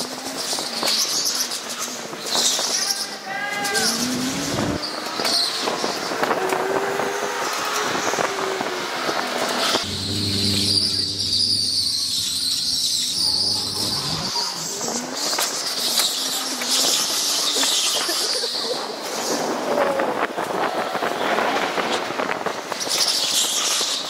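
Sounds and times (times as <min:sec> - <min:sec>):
tyres squealing: 0:09.6 - 0:18.2
low motor hum: 0:09.8 - 0:14.3.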